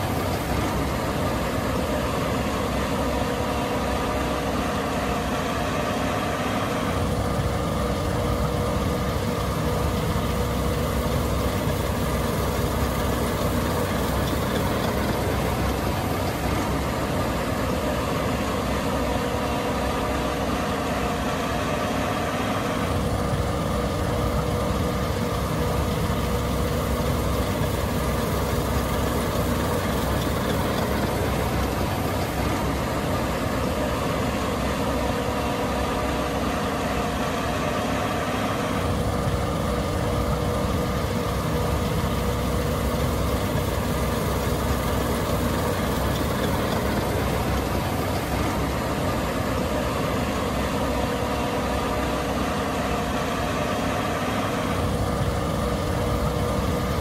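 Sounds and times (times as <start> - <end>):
combine harvester engine drone: 0.0 - 57.0.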